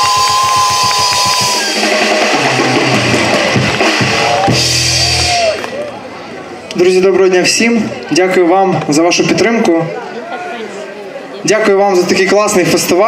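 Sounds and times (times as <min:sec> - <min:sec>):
drum kit playing: 0:00.0 - 0:05.8.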